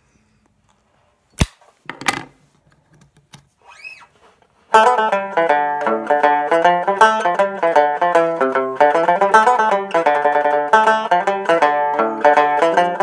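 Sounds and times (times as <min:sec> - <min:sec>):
tenor banjo playing lively tune: 0:04.7 - 0:13.0.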